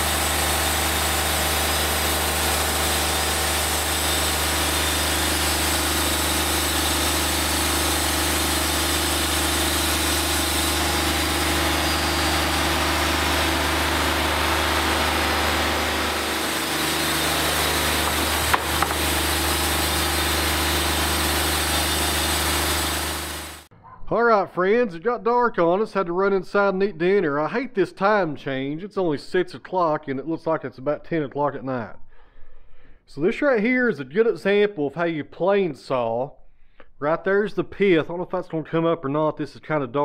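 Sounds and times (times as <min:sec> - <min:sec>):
sawmill engine droning: 0:00.0 - 0:23.7
sharp knock: 0:18.5 - 0:19.0.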